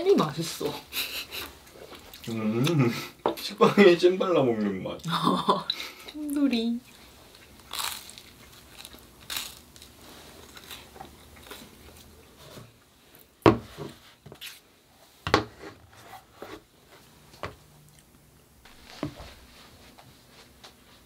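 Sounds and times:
soft rustles and taps: 0:18.7 - 0:21.0.

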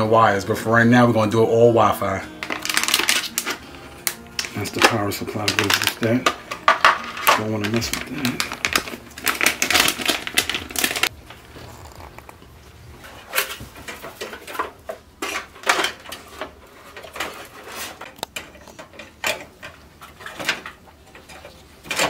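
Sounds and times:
metal parts rattling on case: 0:02.4 - 0:03.6, 0:04.4 - 0:12.1.

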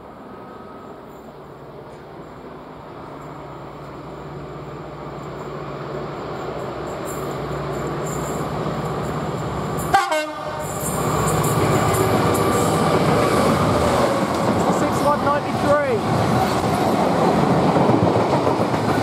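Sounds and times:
diesel locomotive engine: 0:00.0 - 0:19.0
two-tone train horn blast: 0:09.9 - 0:10.8.

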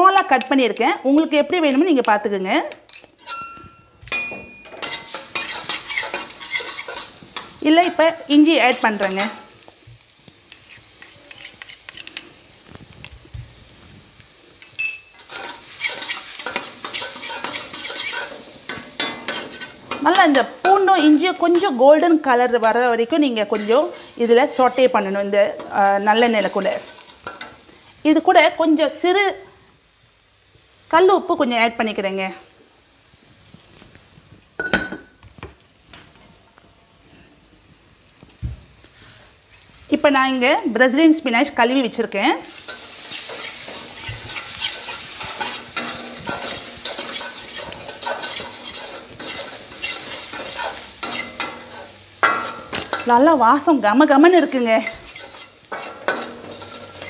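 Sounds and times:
spatula scraping and tapping wok: 0:00.0 - 0:12.9, 0:14.6 - 0:21.8, 0:22.5 - 0:27.8, 0:42.5 - 0:57.0
garlic sizzling in oil: 0:00.0 - 0:57.0
ladle clanking on wok: 0:02.9 - 0:08.0, 0:42.6 - 0:53.2, 0:54.8 - 0:57.0
ringing metallic clang: 0:03.2 - 0:05.1.

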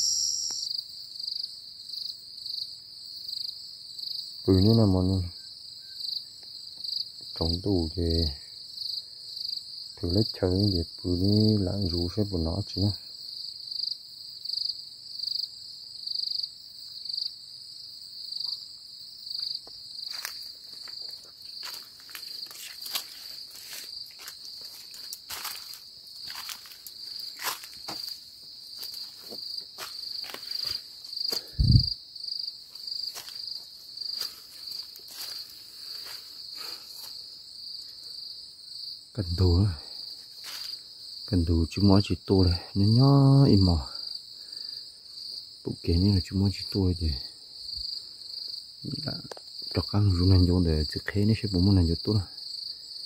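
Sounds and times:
insects chirping: 0:00.0 - 0:53.0
crackles and rustles: 0:20.1 - 0:31.6.

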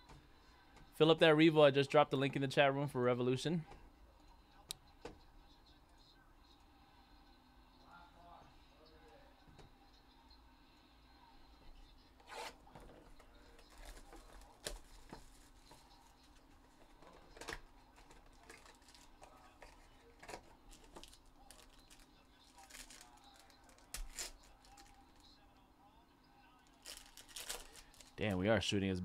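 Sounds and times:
card pack rustling and crinkling: 0:13.6 - 0:25.2, 0:26.7 - 0:28.2.

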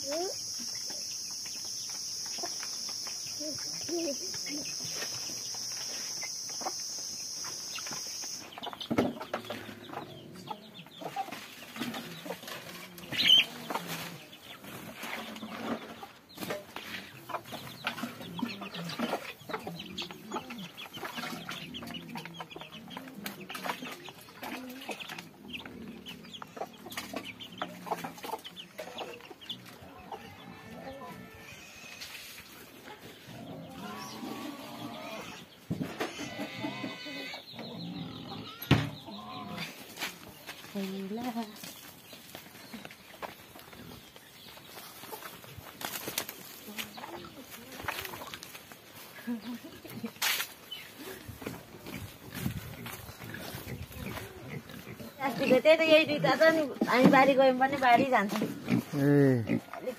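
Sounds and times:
chickens clucking: 0:00.0 - 0:59.9
chicken squawk: 0:33.7 - 0:37.4.

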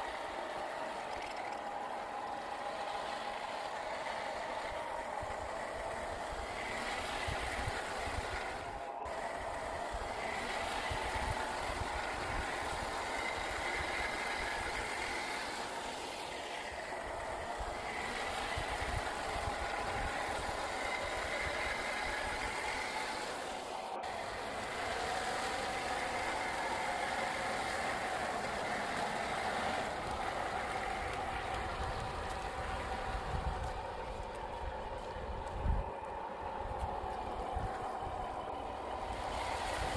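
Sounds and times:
toy truck electric motor whining: 0:00.0 - 0:39.9.

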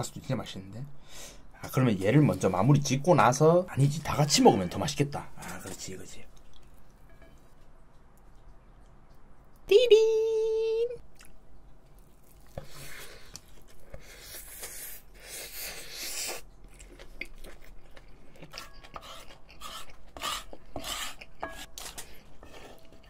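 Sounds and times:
crunchy chewing: 0:11.1 - 0:23.0
spoon scraping a frying pan: 0:18.6 - 0:23.0.

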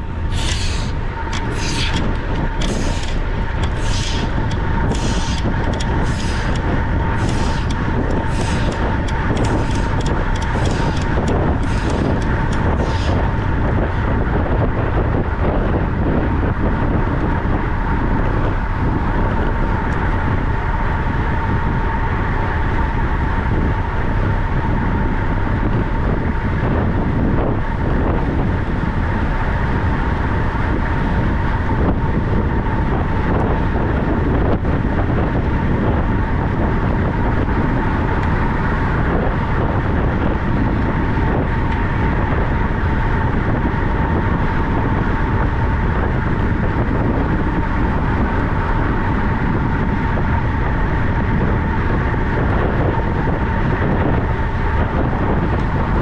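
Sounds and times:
wind rushing over microphone: 0:00.0 - 0:56.0
repeating hiss: 0:00.3 - 0:06.6, 0:07.2 - 0:13.2.

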